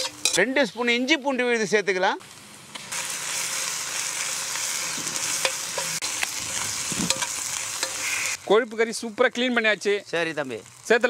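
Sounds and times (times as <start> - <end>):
onions sizzling in hot oil: 0.0 - 11.0
metal spoon scraping a wok: 5.3 - 8.4.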